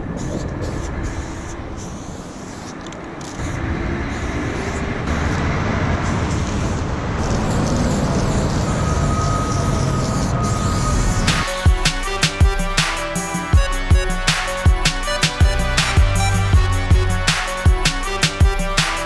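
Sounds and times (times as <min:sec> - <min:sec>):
highway traffic rumbling: 0:00.0 - 0:18.9
spray-paint can hissing: 0:00.2 - 0:04.9.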